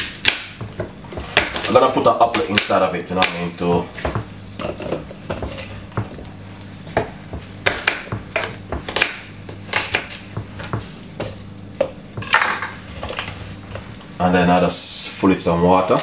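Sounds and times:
low steady hum: 0.0 - 16.0
knife knocking on chopping board: 4.0 - 4.3.

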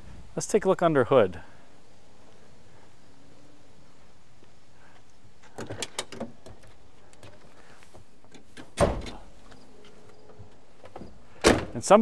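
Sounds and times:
heavy door thunk: 8.6 - 9.2, 10.4 - 11.8.

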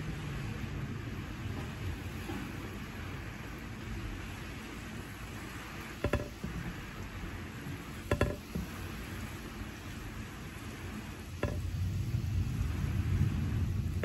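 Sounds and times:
steady rain falling: 0.0 - 14.0
drips with ringing ping: 6.0 - 6.7, 8.1 - 8.8, 11.4 - 11.8
distant thunder rumble: 11.4 - 14.0.

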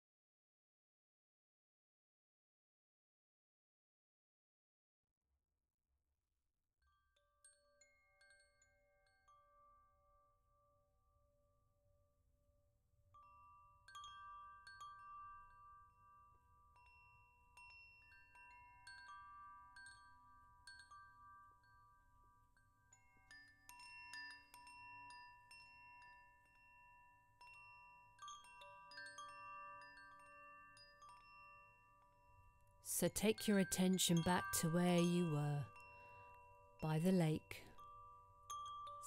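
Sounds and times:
bell-like tuned percussion: 22.9 - 39.0.

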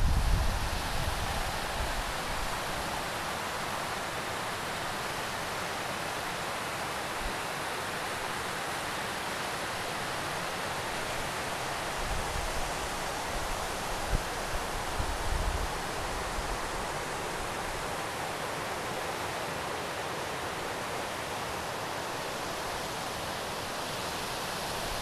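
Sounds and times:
wind buffeting microphone: 0.0 - 1.4
stream rushing over rocks: 0.0 - 25.0.

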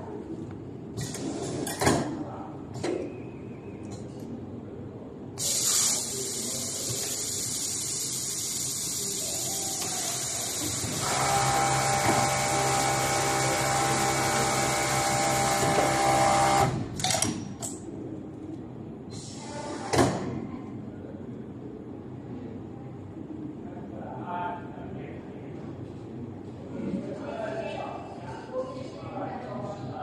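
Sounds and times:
pneumatic puffs and clicks: 5.4 - 9.0
compressed air hissing: 5.4 - 11.0
sewing machine humming: 5.4 - 16.8.

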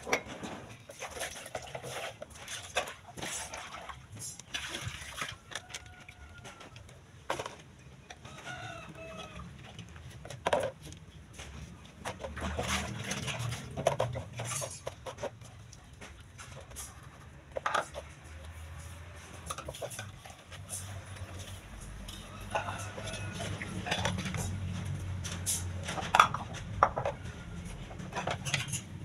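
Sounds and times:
chickens clucking: 17.0 - 24.8.

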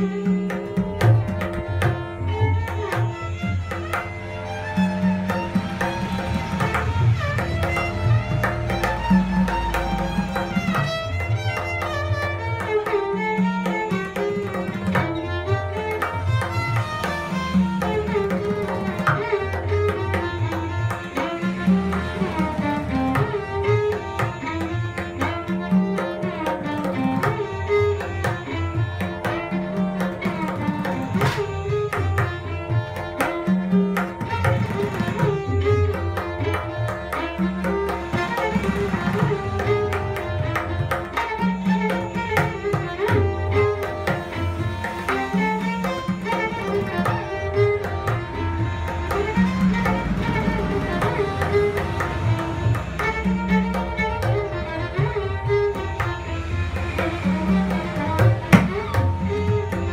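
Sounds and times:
bowed violin melody: 0.0 - 59.9
tabla strokes: 0.0 - 59.9
steady drone: 2.0 - 59.9.

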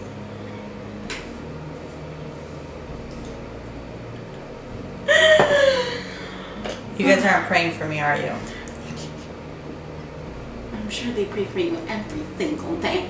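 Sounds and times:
low room hum: 0.0 - 13.0
woman laughing: 5.1 - 6.2.

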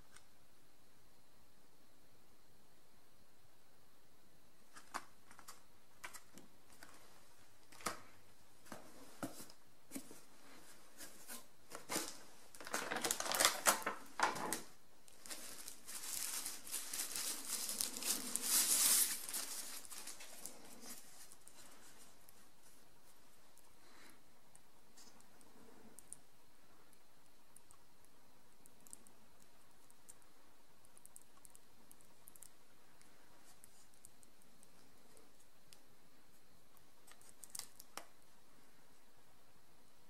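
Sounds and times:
plastic packaging crinkling: 11.7 - 22.2, 37.0 - 38.0.

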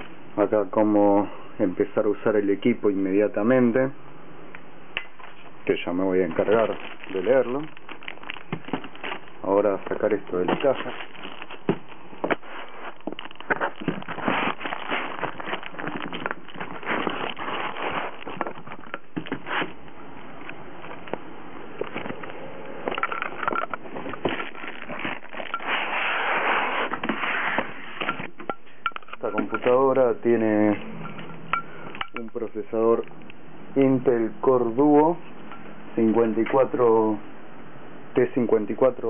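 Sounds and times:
foam packing rustling and crinkling: 5.2 - 30.8
cardboard scraping and rubbing: 6.2 - 19.8, 23.8 - 28.4.

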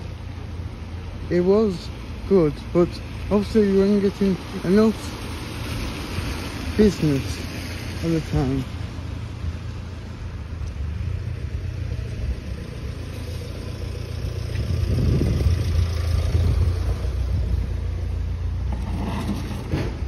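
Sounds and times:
rain hissing on wet paving: 0.0 - 14.8
wind buffeting microphone: 10.6 - 18.0.

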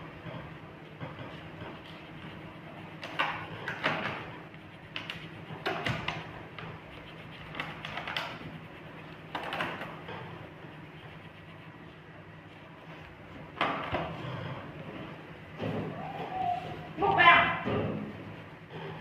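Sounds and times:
low steady hum: 0.0 - 19.0
crayon scribbling on paper: 1.2 - 13.0.

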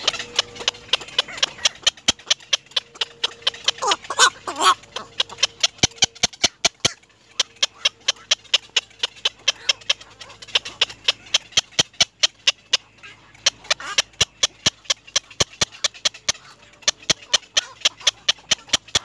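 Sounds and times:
faint high calls: 0.0 - 14.2
rapid sharp ticks: 0.0 - 19.0.

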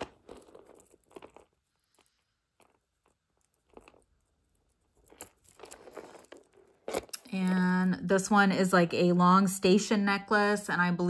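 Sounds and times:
chain necklace clicking: 0.0 - 7.2.

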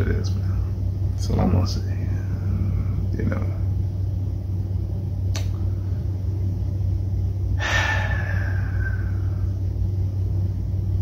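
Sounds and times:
low hum: 0.0 - 11.0
breathy exhale: 7.6 - 9.6.

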